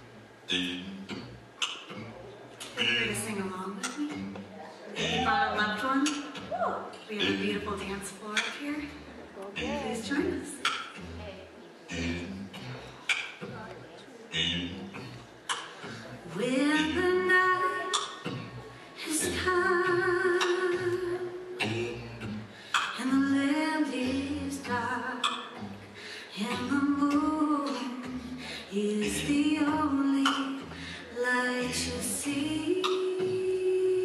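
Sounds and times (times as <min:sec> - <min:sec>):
woman singing a cappella: 0:16.3 - 0:18.3, 0:19.0 - 0:21.6, 0:22.9 - 0:25.6, 0:26.3 - 0:34.0.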